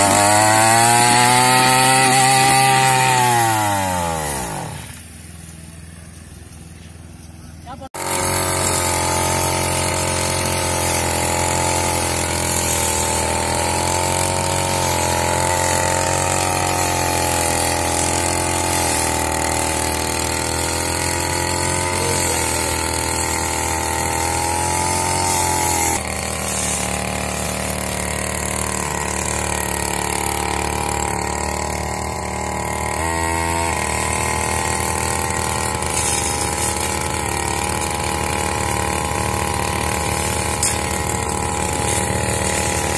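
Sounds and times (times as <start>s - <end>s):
brush cutter engine cutting grass: 0.0s - 42.9s.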